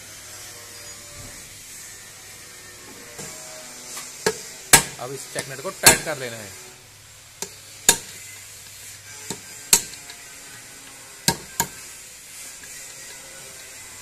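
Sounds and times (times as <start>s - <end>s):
hammer tapping steel punch: 7.4s - 8.2s, 9.3s - 10.0s.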